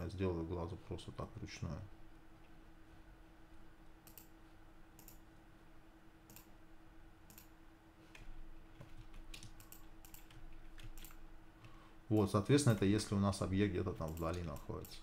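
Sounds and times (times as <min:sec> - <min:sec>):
faint steady hum: 0:00.0 - 0:15.0
mouse and keyboard clicks: 0:09.1 - 0:11.2, 0:14.0 - 0:15.0.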